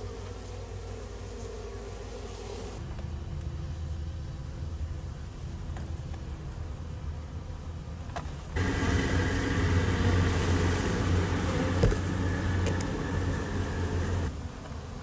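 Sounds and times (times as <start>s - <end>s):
honey bees buzzing: 0.0s - 5.7s, 7.7s - 15.0s
steady low hum: 8.6s - 14.3s.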